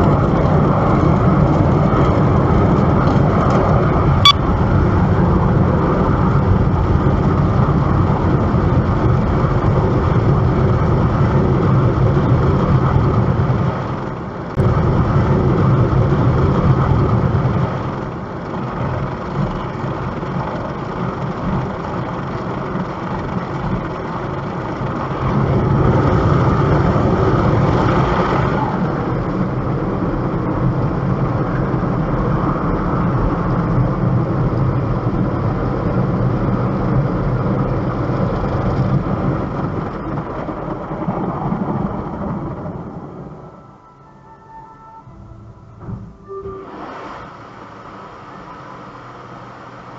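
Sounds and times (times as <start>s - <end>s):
car engine and road noise: 0.0s - 49.9s.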